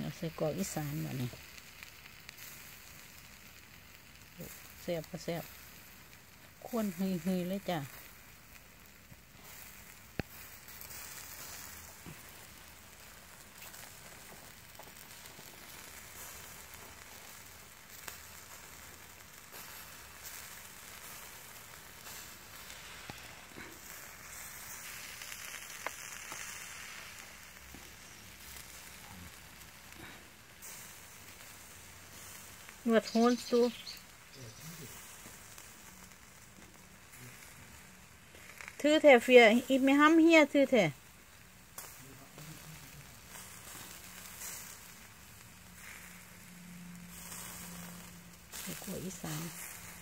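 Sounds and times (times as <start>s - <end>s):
sausages sizzling on grill: 0.0s - 50.0s
sharp pops: 9.9s - 12.3s.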